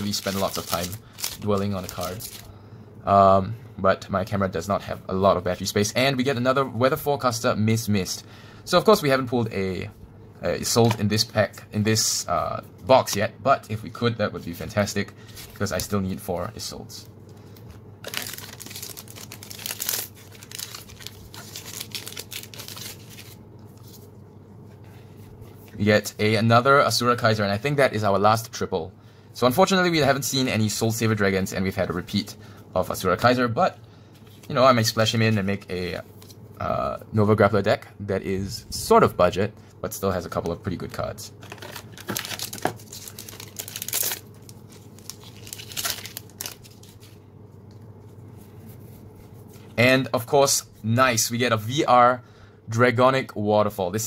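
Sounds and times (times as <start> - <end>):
card handling: 0.0 - 2.5, 17.5 - 24.1, 41.4 - 47.8
foil pack tearing and crinkling: 0.0 - 2.5, 18.0 - 23.4, 41.4 - 47.1.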